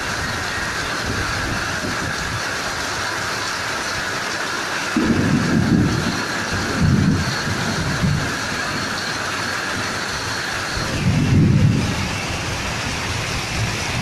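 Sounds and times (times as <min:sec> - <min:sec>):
heavy rain pouring: 0:00.0 - 0:14.0
loud low rumble: 0:10.7 - 0:14.0.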